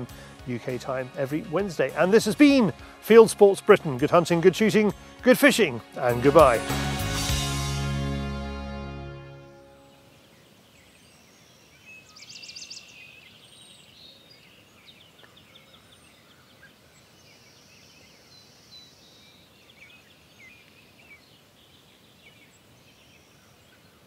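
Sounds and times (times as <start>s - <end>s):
small birds chirping: 9.8s - 24.0s.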